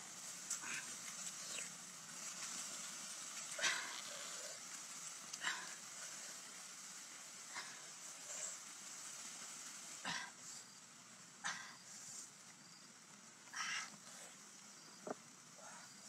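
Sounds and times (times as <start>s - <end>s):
sauce sizzling bursts: 0.0s - 13.1s
meat sizzling on grill: 0.0s - 13.4s.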